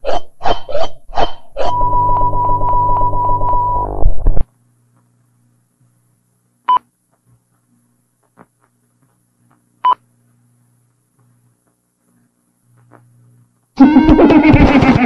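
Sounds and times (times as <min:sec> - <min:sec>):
short electronic beeps: 0:01.6 - 0:04.4
faint low hum: 0:01.6 - 0:15.0.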